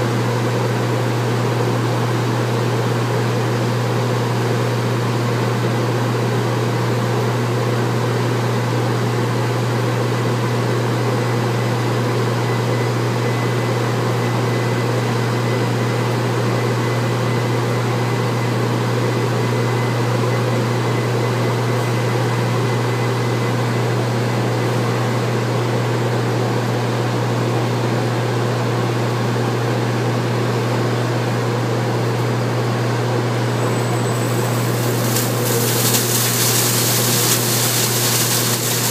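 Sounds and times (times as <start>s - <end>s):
machine humming: 33.6s - 38.9s
rushing noise: 34.1s - 38.9s.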